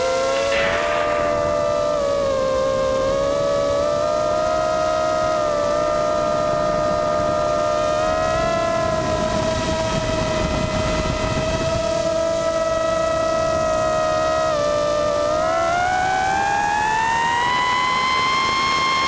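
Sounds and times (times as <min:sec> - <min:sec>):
air rush: 0:00.0 - 0:03.8
drone propellers whining: 0:00.0 - 0:19.0.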